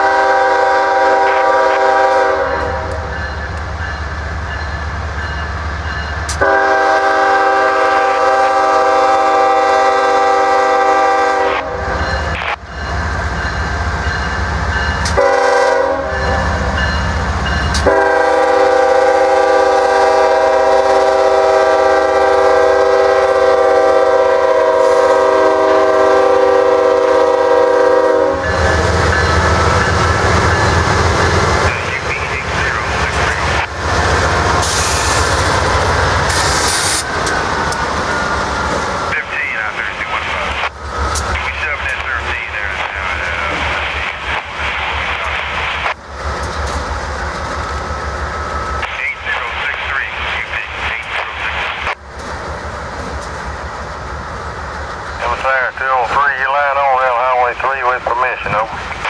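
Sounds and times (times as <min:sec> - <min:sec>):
locomotive air horn blasts: 0:00.0 - 0:03.0, 0:06.4 - 0:12.0, 0:15.1 - 0:16.4, 0:17.8 - 0:28.8
diesel locomotive rumble: 0:00.0 - 0:59.0.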